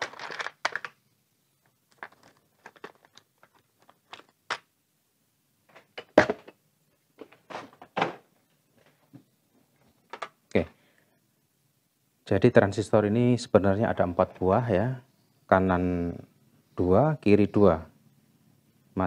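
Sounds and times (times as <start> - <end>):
small parts clicking in plastic box: 0.0 - 1.0, 1.9 - 4.7.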